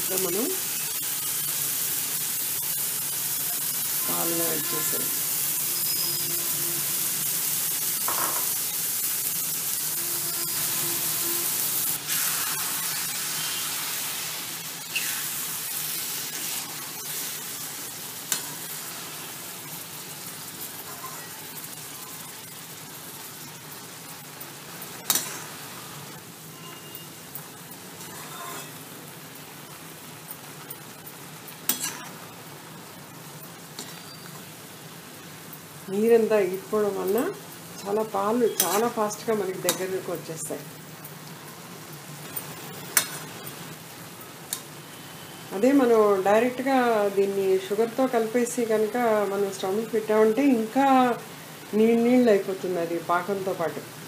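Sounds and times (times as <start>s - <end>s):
food sizzling in hot fat: 0.0s - 54.0s
metal spoon scraping a pan: 20.8s - 21.4s, 24.8s - 25.6s, 27.7s - 28.9s, 31.7s - 32.2s, 33.8s - 34.4s, 38.5s - 39.0s.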